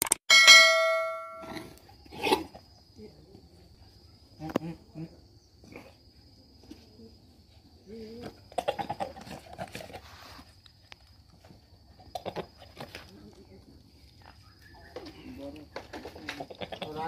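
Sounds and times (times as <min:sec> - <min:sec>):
bell chime: 0:00.3 - 0:01.5.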